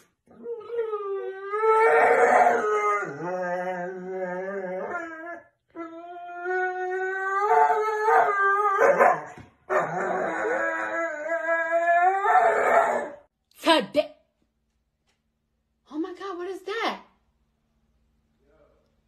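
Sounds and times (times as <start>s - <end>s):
dog howling: 0.3s - 13.3s.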